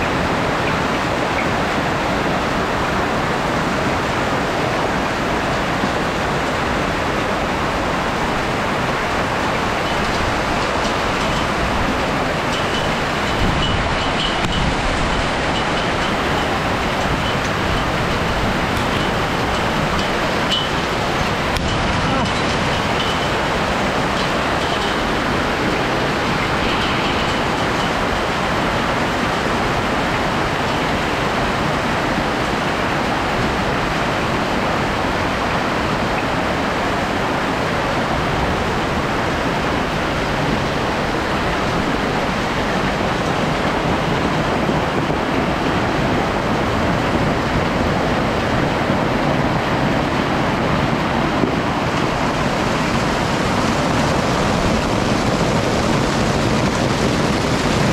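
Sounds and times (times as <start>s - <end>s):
hailstones pelting on roofs: 8.8s - 32.0s, 50.6s - 57.9s.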